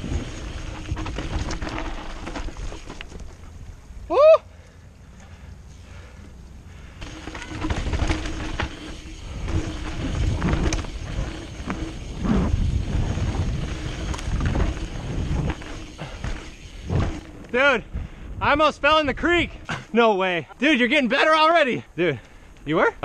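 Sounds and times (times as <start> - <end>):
bike chain and frame rattling: 0.0 - 3.9, 6.7 - 18.2
bike tyres on dirt: 0.0 - 23.0
wind rush on microphone: 7.5 - 19.6.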